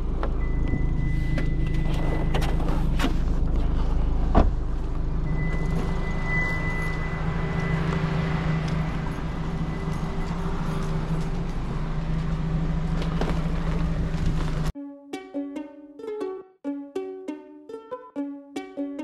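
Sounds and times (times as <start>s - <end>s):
car engine humming: 0.0s - 14.7s.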